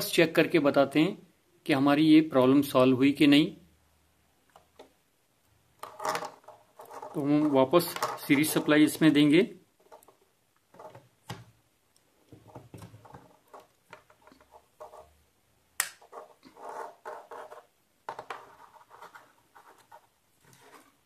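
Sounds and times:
rustling and scratching on workbench: 0:05.8 - 0:08.8, 0:12.3 - 0:15.2, 0:16.0 - 0:21.0.

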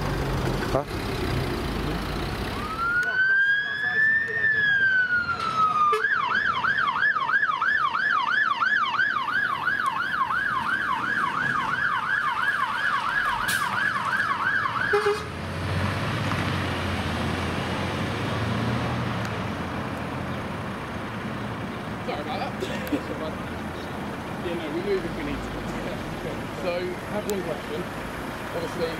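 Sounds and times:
fire engine diesel rumble: 0:00.0 - 0:28.9
siren wail: 0:02.5 - 0:15.3
siren yelping: 0:02.6 - 0:15.2.

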